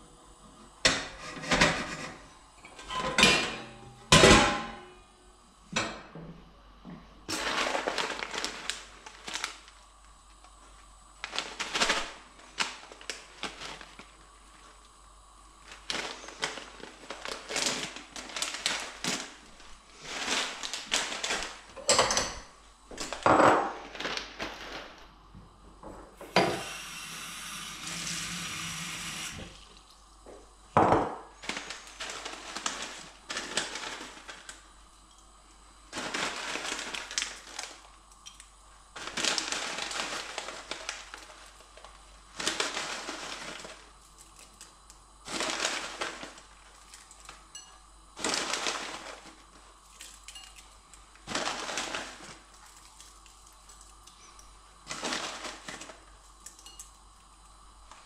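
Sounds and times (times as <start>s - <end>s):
plastic packets crinkling: 7.3s - 10.4s, 11.2s - 14.7s, 15.6s - 21.8s, 23.0s - 25.2s, 31.3s - 34.9s, 35.9s - 38.4s, 39.0s - 47.6s, 48.2s - 54.2s, 54.8s - 56.8s.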